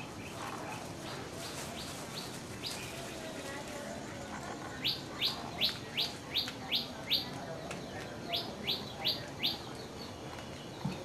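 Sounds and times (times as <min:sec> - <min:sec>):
small bird chirping: 0:03.9 - 0:11.0.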